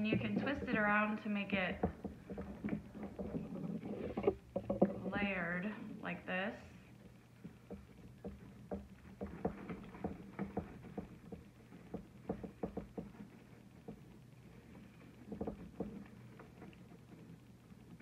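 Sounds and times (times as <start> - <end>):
small taps: 7.4 - 18.0.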